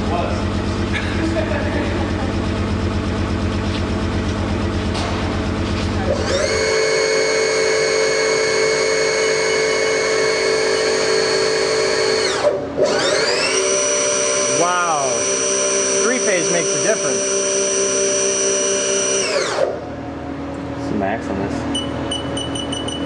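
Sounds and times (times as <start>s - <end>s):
low throbbing machine drone: 0.0s - 13.4s
mill spindle whine: 0.0s - 23.0s.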